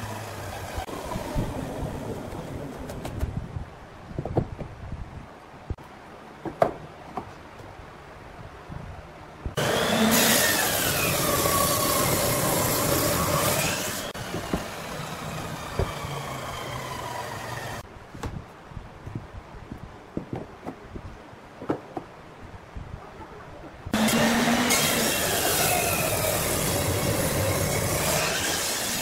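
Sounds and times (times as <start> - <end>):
table saw cutting wood: 9.6 - 17.8, 24.0 - 29.0.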